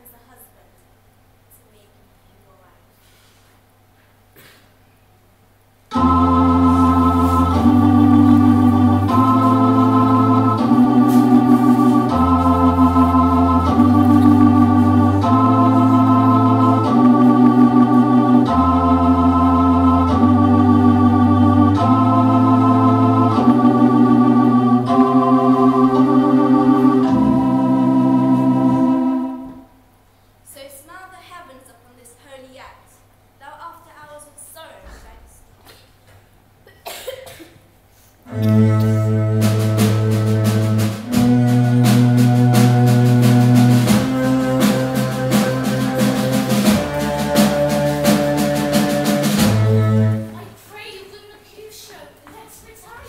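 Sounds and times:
organ playing held chords: 5.9s - 29.8s, 38.3s - 50.4s.

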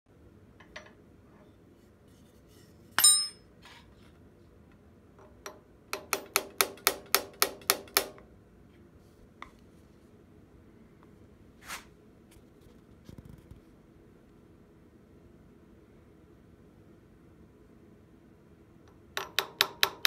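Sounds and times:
hammer clanging on metal: 3.0s - 3.5s.

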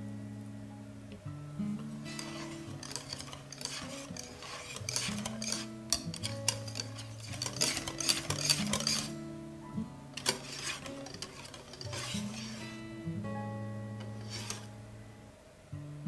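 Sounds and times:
whisk clicking against glass bowl: 2.2s - 9.2s, 10.2s - 12.6s
whisk swishing through batter: 2.2s - 9.2s, 10.2s - 12.8s, 14.1s - 14.7s.

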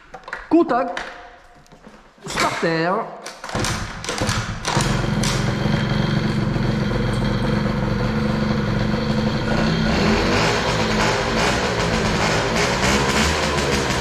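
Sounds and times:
moped engine kick-starting and running: 3.4s - 14.0s.

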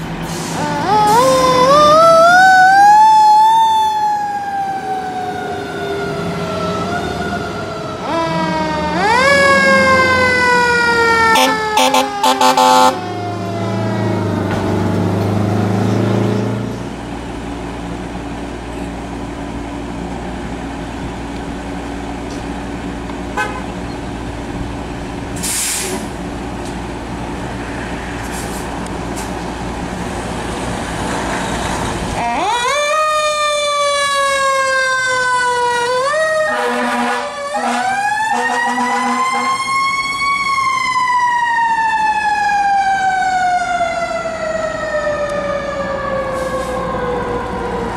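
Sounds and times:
diesel engine running: 0.0s - 3.2s, 9.2s - 32.2s
fire engine siren wailing: 0.0s - 23.6s, 24.2s - 47.9s
air horn blasts: 11.3s - 13.0s, 23.4s - 23.8s, 36.5s - 39.6s
air hiss: 25.4s - 26.1s.

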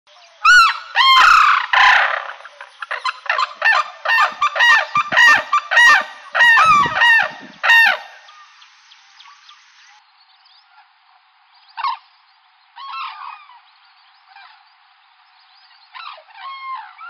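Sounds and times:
cranes trumpeting calls: 0.4s - 8.6s, 12.8s - 13.6s.

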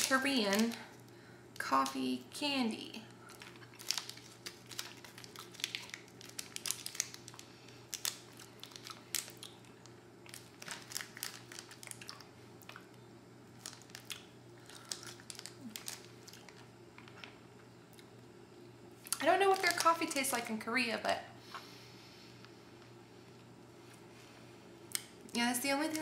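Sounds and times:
candy wrapper crinkling: 0.0s - 1.0s, 1.6s - 2.2s, 3.2s - 17.4s, 19.1s - 20.4s.

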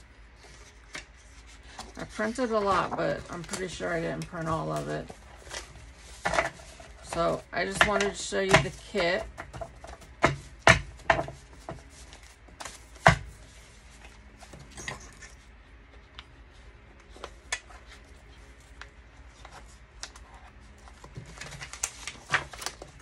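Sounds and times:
paper rustling: 0.4s - 7.7s.

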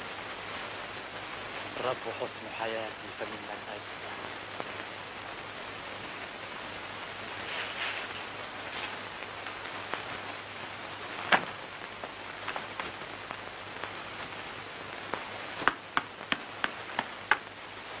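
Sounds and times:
film soundtrack hiss: 0.0s - 18.0s
hands patting dough: 15.6s - 17.5s
sharp taps: 15.6s - 17.5s.

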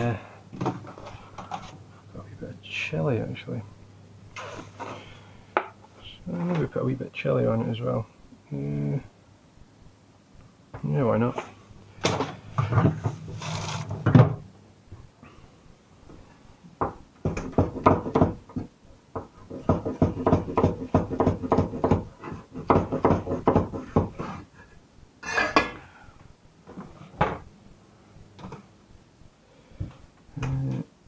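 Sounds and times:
knife chopping on wooden board: 19.5s - 24.4s.

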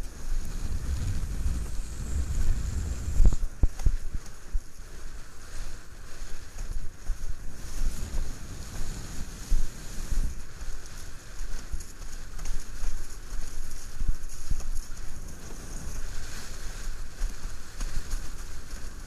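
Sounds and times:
water rushing and hissing: 0.0s - 6.4s, 7.0s - 10.6s, 15.2s - 18.6s
wind buffeting microphone: 0.0s - 19.0s
board thumping on waves: 0.2s - 4.8s, 6.5s - 13.2s, 14.5s - 19.0s.

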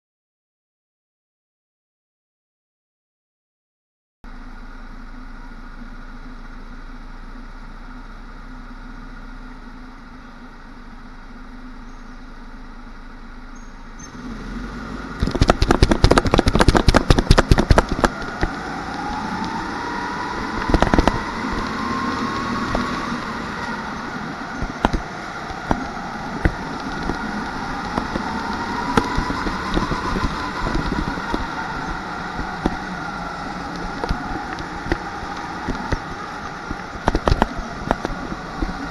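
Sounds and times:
go-kart motor: 4.3s - 38.9s
wind and track noise: 14.0s - 38.9s
loud rattling and clattering: 15.2s - 19.5s.

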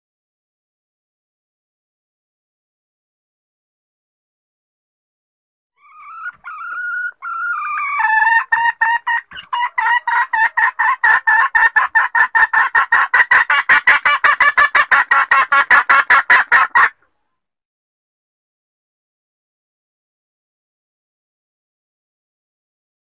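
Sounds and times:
hen calling with clucks: 5.8s - 17.1s.

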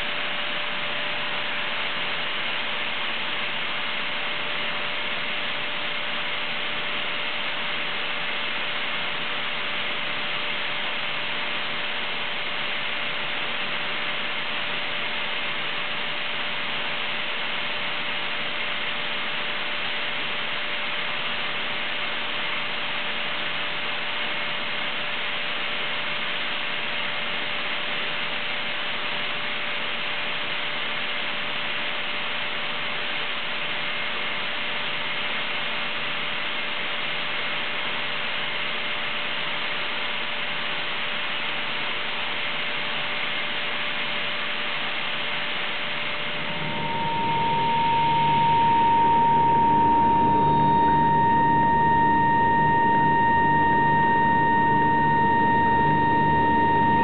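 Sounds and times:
air compressor running: 46.2s - 57.0s.

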